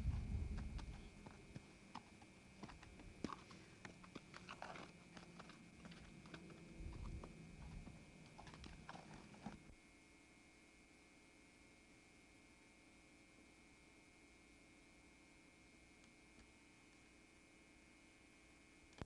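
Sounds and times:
hoofbeats on sandy dirt: 0:00.0 - 0:09.7.

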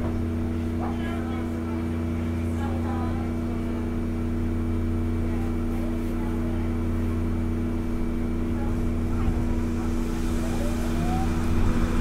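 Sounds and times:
air-conditioning running: 0:00.0 - 0:12.0
train electrical hum: 0:06.2 - 0:12.0.

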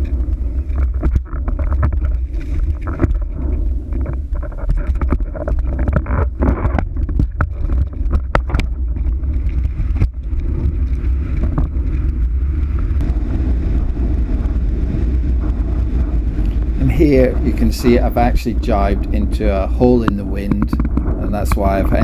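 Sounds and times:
sharp clicks and knocks: 0:00.0 - 0:10.3, 0:19.9 - 0:22.0
wind buffeting camera: 0:00.0 - 0:22.0.

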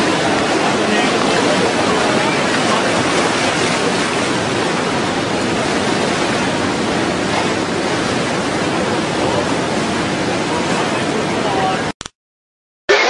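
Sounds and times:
river rushing in flood: 0:00.0 - 0:11.9.

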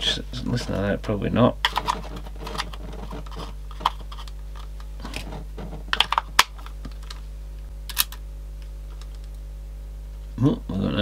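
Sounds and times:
steady low hum: 0:00.0 - 0:11.0
headphone plug scraping: 0:01.6 - 0:07.2.

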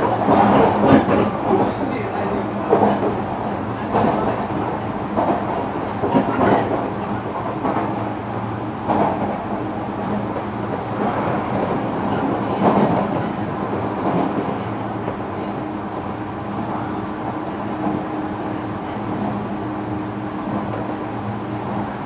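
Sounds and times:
train wheels knocking on rail joints: 0:00.0 - 0:08.0, 0:08.8 - 0:14.4
train rumble: 0:00.0 - 0:22.0.

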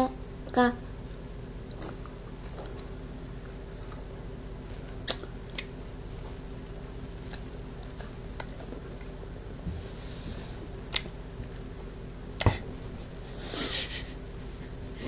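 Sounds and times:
low background hum: 0:00.0 - 0:15.0
mouth clicks and smacks: 0:05.0 - 0:05.7, 0:07.3 - 0:08.8, 0:10.9 - 0:11.1.

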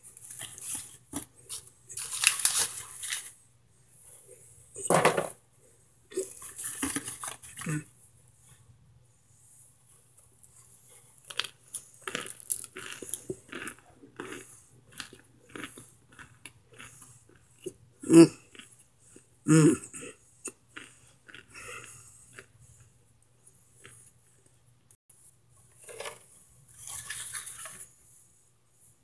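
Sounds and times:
cornstarch chunks crunching: 0:11.2 - 0:17.8.

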